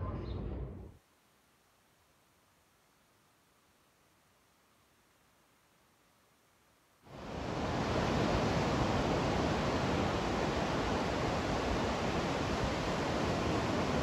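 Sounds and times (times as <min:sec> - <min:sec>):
ocean surf breaking: 0:07.1 - 0:14.0.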